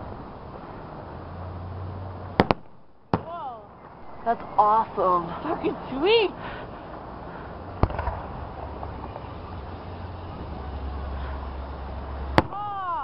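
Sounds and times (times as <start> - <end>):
firework shells bursting: 2.4 - 3.3, 7.7 - 9.2.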